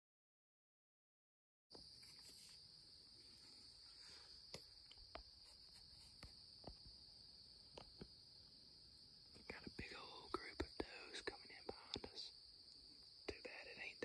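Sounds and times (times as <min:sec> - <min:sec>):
insect chorus trilling: 0:01.8 - 0:14.0
soft ticks: 0:11.8 - 0:12.8.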